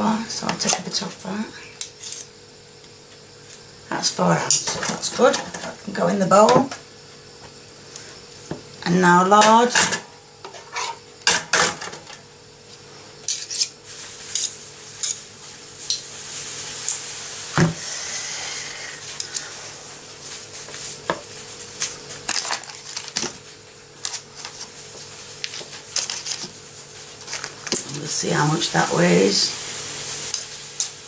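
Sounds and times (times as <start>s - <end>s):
faint steady hum: 0.0s - 31.0s
metal spoon scraping a bowl: 13.3s - 13.7s.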